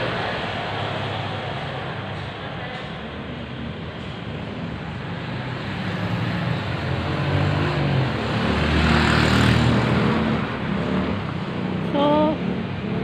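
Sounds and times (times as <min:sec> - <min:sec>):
vehicle engine passing by: 0:04.9 - 0:13.0.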